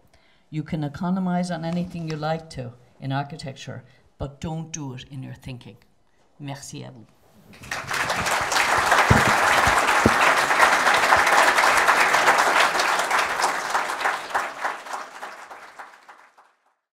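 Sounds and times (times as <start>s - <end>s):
audience applauding: 7.5s - 16.7s.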